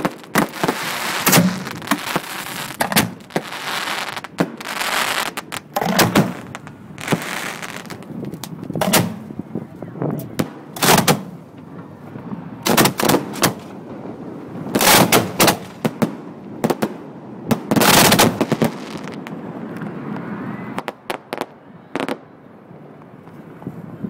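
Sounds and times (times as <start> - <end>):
firework shells bursting: 0.0 - 9.3, 14.8 - 16.1
light firework cracks: 0.0 - 9.3.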